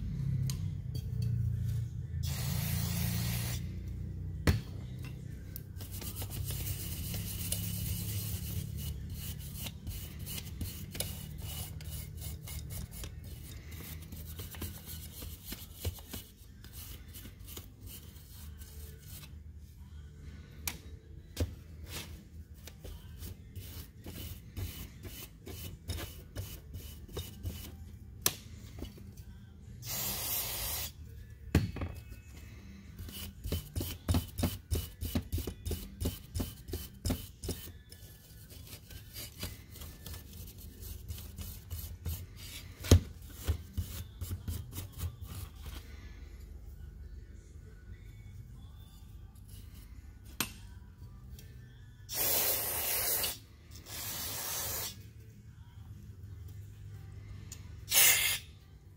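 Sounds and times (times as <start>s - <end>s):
aerosol spray hiss: 2.3s - 3.6s, 29.9s - 30.9s, 52.1s - 53.3s, 54.0s - 54.9s.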